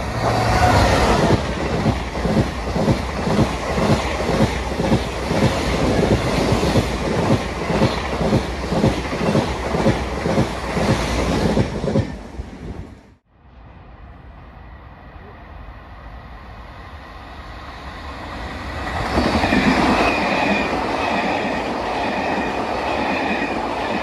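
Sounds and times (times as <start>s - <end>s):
train wheels clattering on track: 0.0s - 12.3s
rush of passing train cars: 0.0s - 24.0s.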